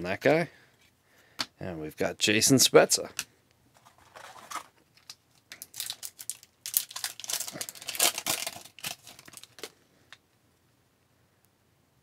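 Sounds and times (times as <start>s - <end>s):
foil wrapper crinkling and tearing: 3.8s - 9.8s.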